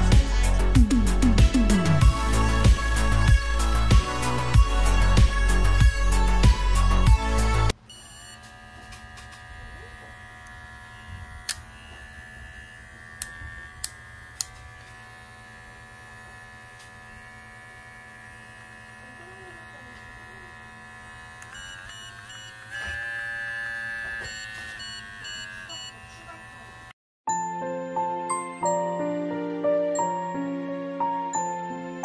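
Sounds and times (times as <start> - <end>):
hair clipper motor hum: 1.6 - 27.0.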